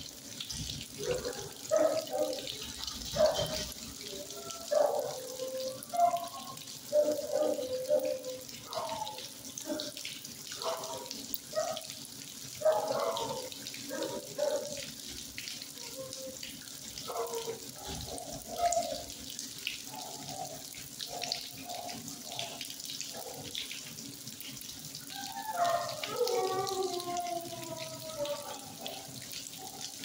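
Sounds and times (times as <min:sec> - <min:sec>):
water rushing and splashing: 0:00.0 - 0:10.0, 0:12.6 - 0:14.8, 0:24.7 - 0:30.0.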